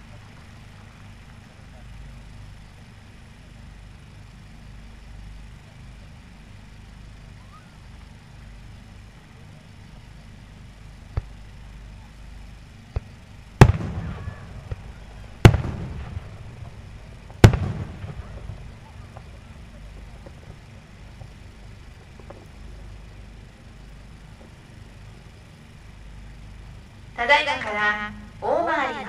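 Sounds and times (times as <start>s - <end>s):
low outdoor murmur: 0.0s - 29.0s
fireworks bursting: 12.8s - 25.3s.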